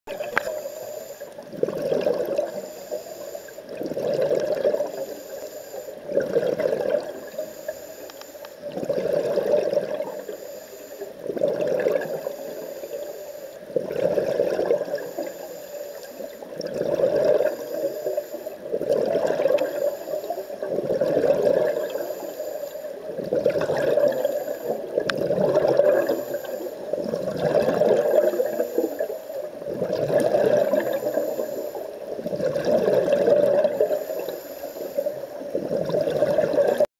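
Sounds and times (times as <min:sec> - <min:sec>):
exhaled bubbles underwater: 0:00.1 - 0:36.9
diver breathing through regulator: 0:02.3 - 0:03.7, 0:04.7 - 0:06.4, 0:30.4 - 0:31.9, 0:33.5 - 0:35.4.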